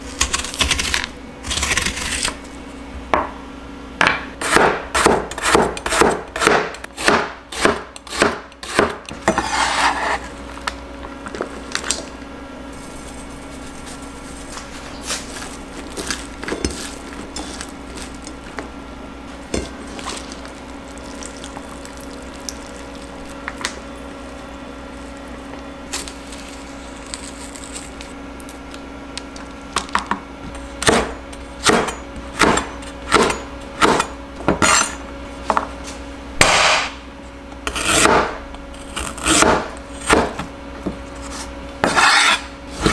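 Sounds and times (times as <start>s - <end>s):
cleaver slicing on cutting board: 4.4s - 10.3s, 41.2s - 42.9s.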